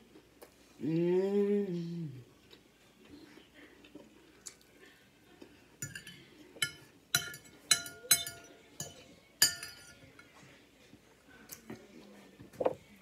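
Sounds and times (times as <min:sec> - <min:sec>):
cutlery clinking on tableware: 0:05.8 - 0:10.3.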